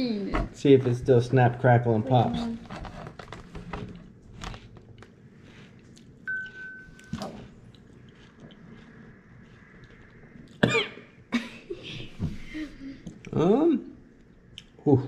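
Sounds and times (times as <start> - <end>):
person chewing crunchy food: 4.4 - 10.6
high beep: 6.3 - 7.2.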